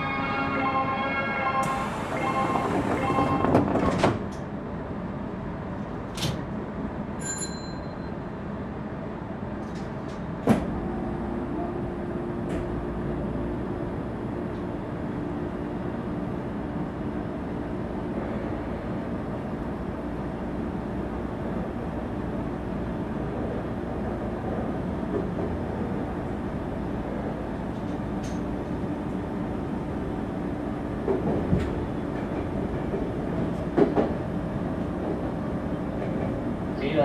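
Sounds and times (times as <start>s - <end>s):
train low hum: 0.0s - 37.0s
train sliding doors shutting: 0.1s - 4.6s, 5.8s - 6.6s, 9.6s - 36.8s
station chime: 2.2s - 3.4s.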